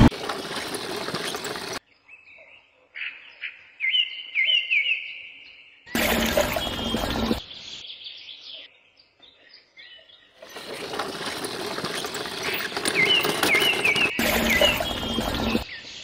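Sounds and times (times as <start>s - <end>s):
wet concrete sliding into wheelbarrow: 0.0s - 1.8s, 6.0s - 7.4s, 10.4s - 15.6s
wheelbarrow moving over sand: 0.0s - 1.8s, 6.0s - 7.4s, 10.4s - 15.7s.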